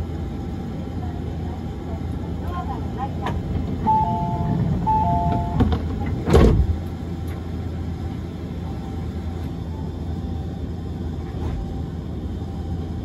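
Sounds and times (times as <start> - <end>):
tram low hum: 0.0 - 13.0
tram doors closing thud: 3.2 - 6.8.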